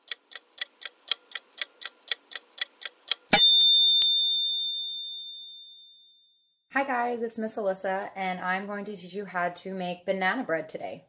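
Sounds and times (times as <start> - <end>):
timer ticking: 0.0 - 4.1
bright bell ding: 3.3 - 5.8.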